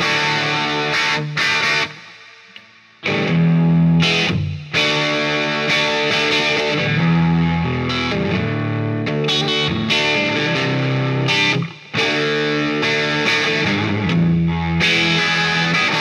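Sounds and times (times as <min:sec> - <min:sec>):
electric guitar chords: 0:00.0 - 0:16.0.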